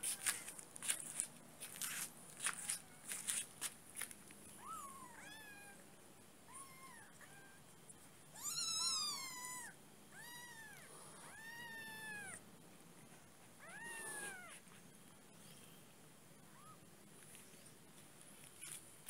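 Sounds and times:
kitten mewing: 0:13.6 - 0:14.6.

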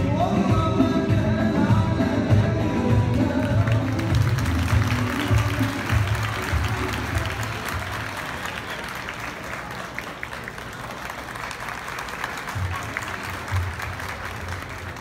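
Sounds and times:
dance music: 0:00.0 - 0:08.4
audience applauding: 0:03.4 - 0:15.0.

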